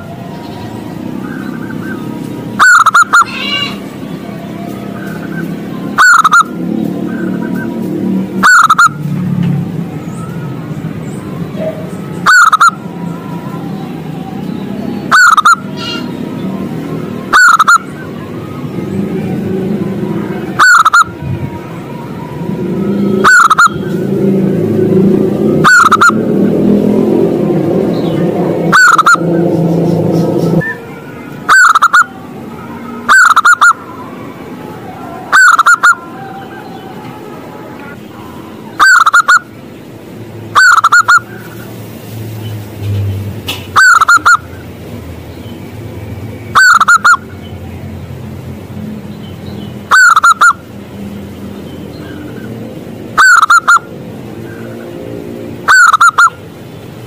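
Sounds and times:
dove calling: 0:00.0 - 0:03.9, 0:04.9 - 0:09.0, 0:10.1 - 0:13.6, 0:14.7 - 0:18.6, 0:20.3 - 0:21.2, 0:22.7 - 0:24.3, 0:25.4 - 0:26.7, 0:28.1 - 0:32.2, 0:33.0 - 0:33.9, 0:35.1 - 0:37.2, 0:37.8 - 0:39.6, 0:40.5 - 0:41.7, 0:43.5 - 0:44.7, 0:46.4 - 0:47.4, 0:49.8 - 0:50.7, 0:53.2 - 0:54.8, 0:55.6 - 0:56.5.

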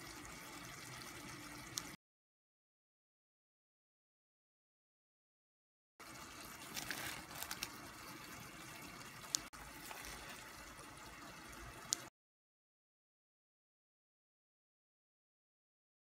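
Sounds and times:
broth bubbling in a pot: 0:00.0 - 0:02.0, 0:06.0 - 0:12.1.

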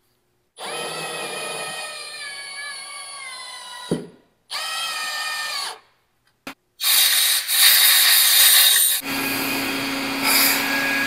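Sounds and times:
compressed air hissing: 0:06.8 - 0:09.1, 0:10.2 - 0:11.0
power tool whining: 0:08.7 - 0:11.0.

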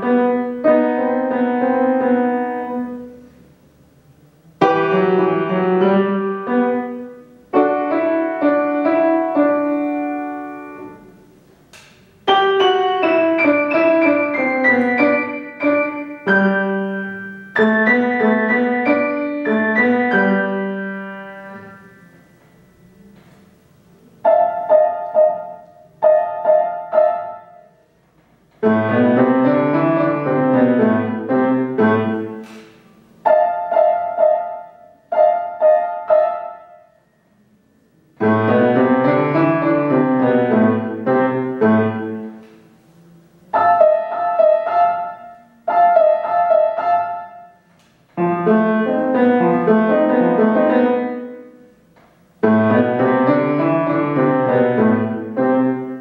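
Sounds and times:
solo grand piano piece: 0:00.0 - 0:56.0.

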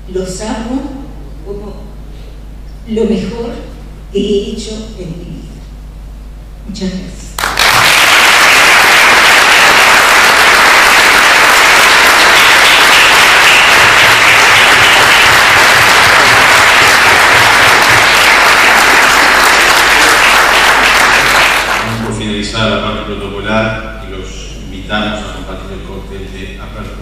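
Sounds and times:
roomful of people applauding: 0:07.4 - 0:22.2.

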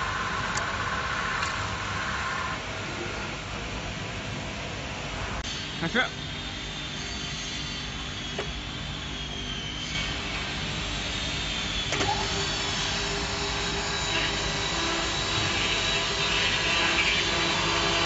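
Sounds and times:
milling machine motors whining: 0:05.4 - 0:18.0.

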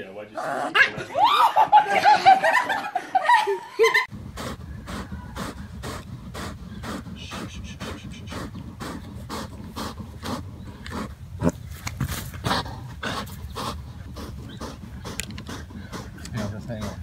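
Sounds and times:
wind rumbling on microphone: 0:04.1 - 0:12.5
deer panting hard: 0:04.1 - 0:17.0.

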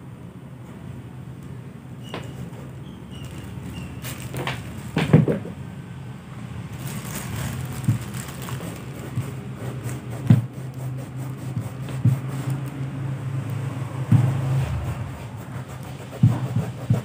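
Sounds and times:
steady low hum: 0:00.0 - 0:17.0
cloth rubbing rubber sole: 0:06.9 - 0:12.8, 0:14.7 - 0:17.0
shoe knocking on mat: 0:10.2 - 0:10.5.

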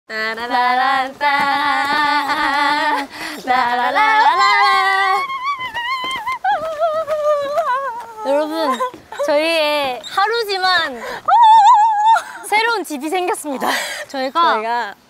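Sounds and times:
women singing wordless notes: 0:00.1 - 0:12.5
women whooping: 0:04.2 - 0:08.9, 0:11.3 - 0:12.3.

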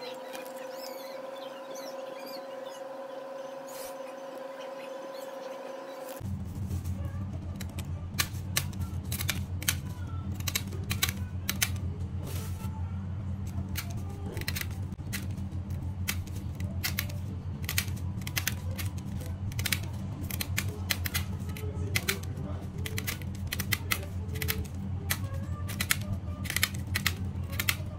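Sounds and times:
scissors snipping plastic: 0:07.5 - 0:11.8, 0:13.5 - 0:15.4, 0:16.0 - 0:27.9.

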